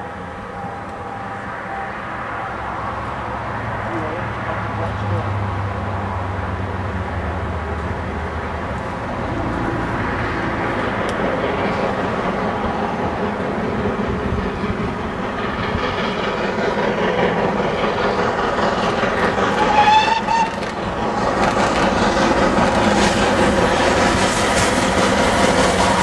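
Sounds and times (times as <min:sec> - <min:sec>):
steam locomotives chuffing: 0:06.5 - 0:26.0
coaches clattering on rails: 0:10.7 - 0:26.0
steam whistle: 0:19.6 - 0:20.7.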